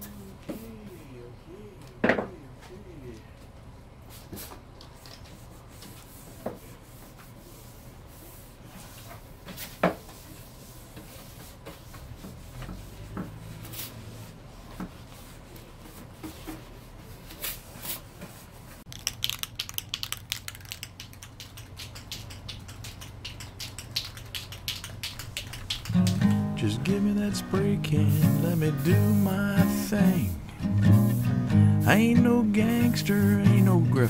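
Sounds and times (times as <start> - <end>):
spray bottle squirting: 18.9 - 33.8
sharp ticks: 19.1 - 26.4
rag rubbing on wood: 21.8 - 33.8.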